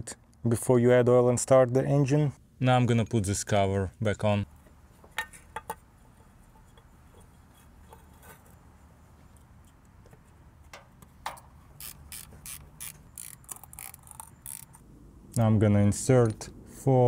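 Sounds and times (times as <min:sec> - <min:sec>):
ratchet wrench clicking: 0:11.8 - 0:14.8.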